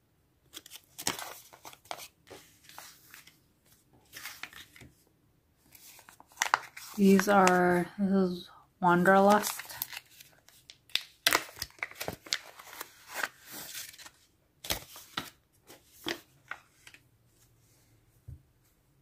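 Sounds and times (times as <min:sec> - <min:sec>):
paper pouch rustling and crinkling: 0:00.5 - 0:04.9, 0:05.6 - 0:07.8, 0:09.1 - 0:17.0.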